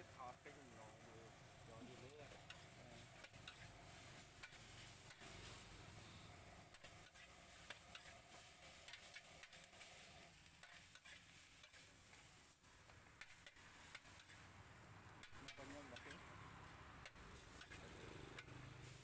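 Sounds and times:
low sizzle: 0.0 - 19.0
spatula scraping a pan: 2.3 - 12.5, 13.2 - 14.5, 15.2 - 16.3, 17.0 - 19.0.

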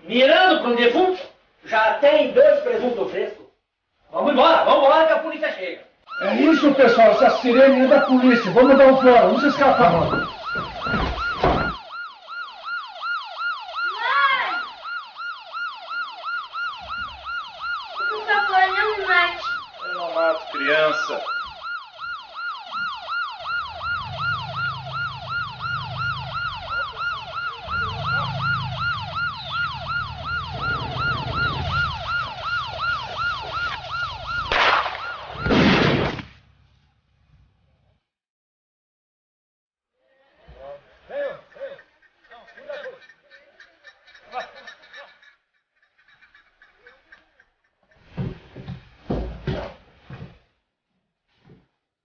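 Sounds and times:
police siren yelping: 6.0 - 35.6.

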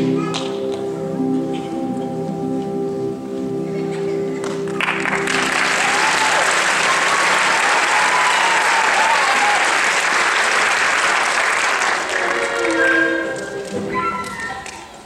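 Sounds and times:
audience applauding: 4.4 - 13.8.

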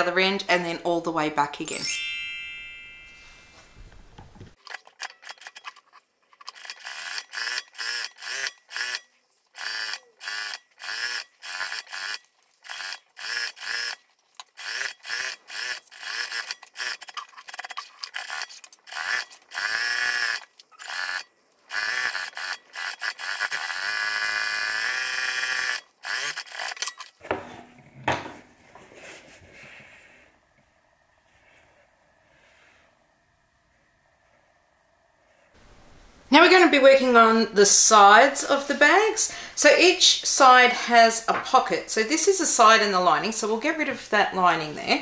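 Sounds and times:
sewing machine stitching: 6.4 - 9.0, 9.6 - 14.0, 14.6 - 26.9.

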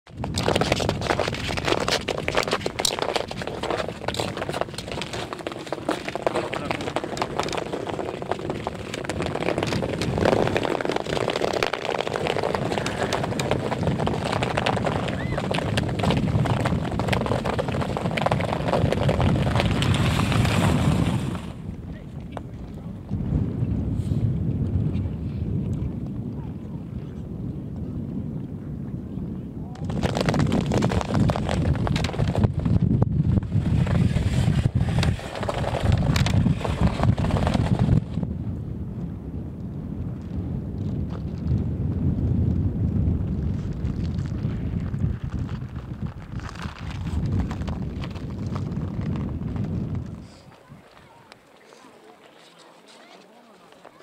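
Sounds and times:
ice skate blades scraping: 0.2 - 21.6, 29.9 - 32.5, 33.5 - 38.2, 43.6 - 49.3, 50.1 - 54.0
wind rushing: 6.1 - 22.1, 22.9 - 50.8.

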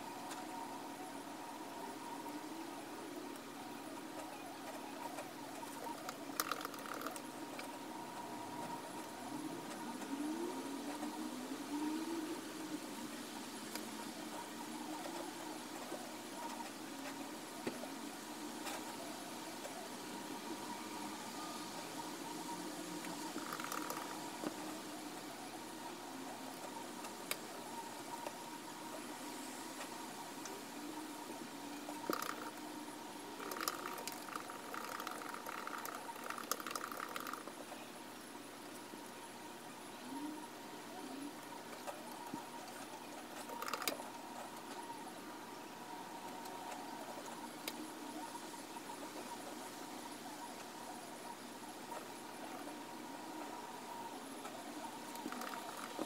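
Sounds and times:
faint drone rising in pitch: 0.0 - 36.1
low room tone hum: 0.0 - 56.0.

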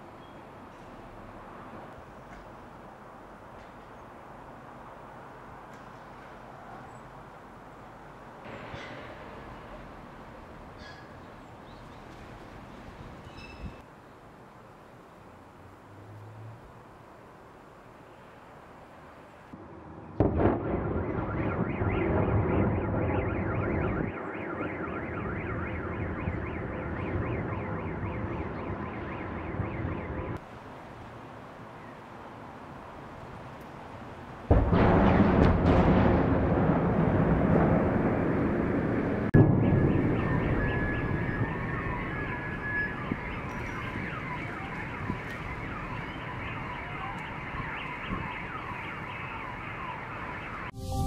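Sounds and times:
city background rumble: 0.0 - 51.0
electronic alarm siren sweeping: 20.7 - 30.4, 39.5 - 51.0.

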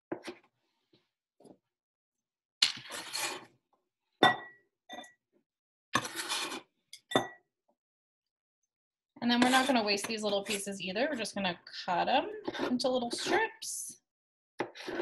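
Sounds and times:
knife scraping cuts: 6.0 - 6.6, 14.6 - 15.0.

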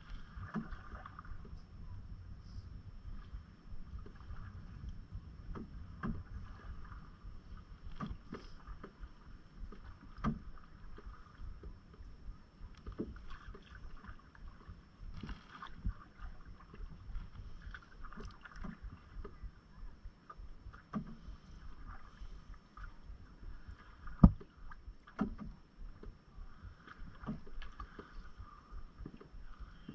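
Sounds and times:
paddle splashing through water: 0.0 - 1.5, 3.1 - 12.1, 12.7 - 19.5, 20.7 - 29.9
low rumble: 0.0 - 29.9
knocks against canoe hull: 5.5 - 6.3, 9.7 - 11.0, 20.8 - 21.2, 24.2 - 24.5, 25.1 - 25.6.

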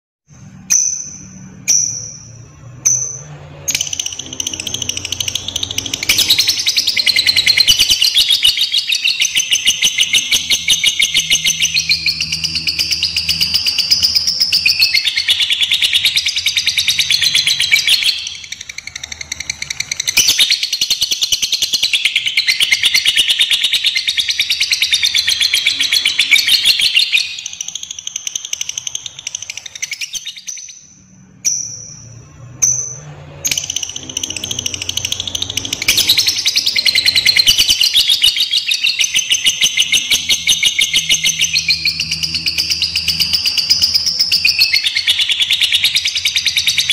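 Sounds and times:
lovebird chattering song: 0.7 - 32.0, 32.6 - 46.9.

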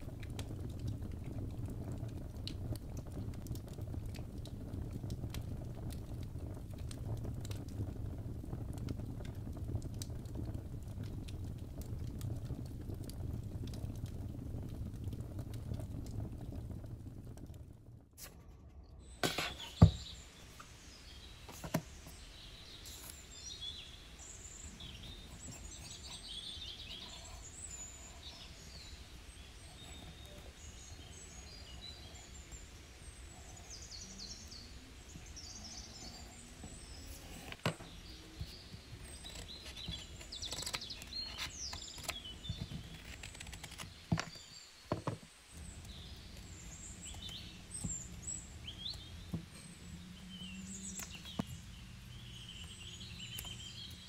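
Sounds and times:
small birds chirping: 19.0 - 54.0
clicks and taps of craft work: 21.5 - 21.9, 37.4 - 37.9, 39.2 - 45.3.

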